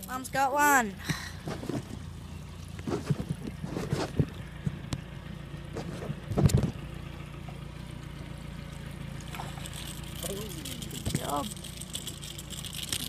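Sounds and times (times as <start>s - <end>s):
outboard motor humming: 0.0s - 13.0s
knocks and rattles on boat: 1.4s - 2.2s, 2.8s - 7.7s.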